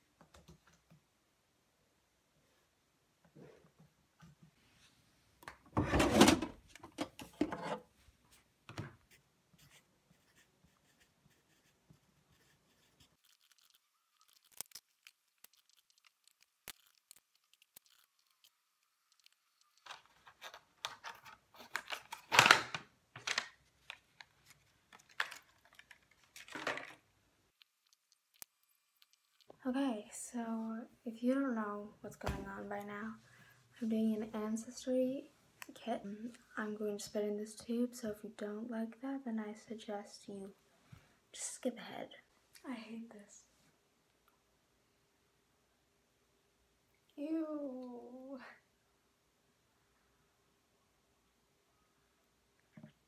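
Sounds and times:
paper and packaging handling: 12.8s - 27.0s.

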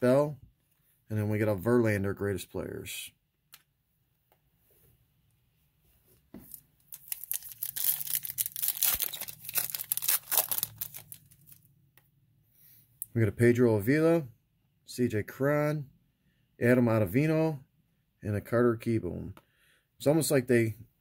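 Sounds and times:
foil wrapper tearing and crinkling: 6.9s - 11.6s.

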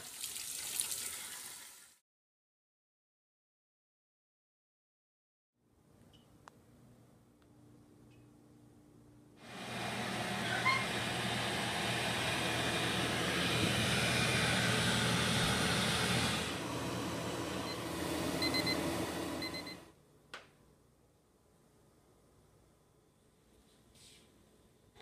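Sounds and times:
air fryer fan hissing: 9.4s - 19.8s.

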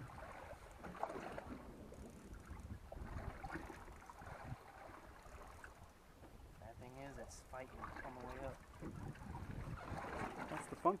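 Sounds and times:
water sloshing against boat hull: 0.0s - 11.0s
wind rumble on microphone: 0.0s - 11.0s.

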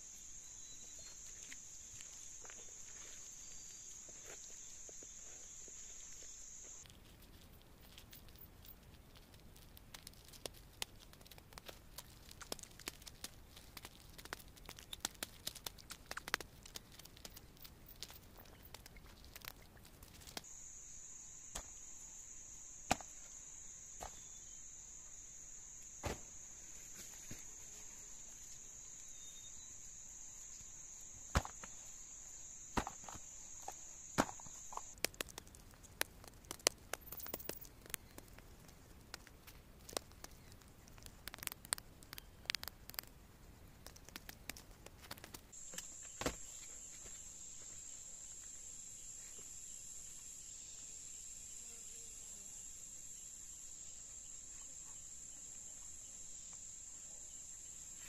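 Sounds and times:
high-pitched insect drone: 0.0s - 6.9s, 20.3s - 35.0s, 45.6s - 58.0s.

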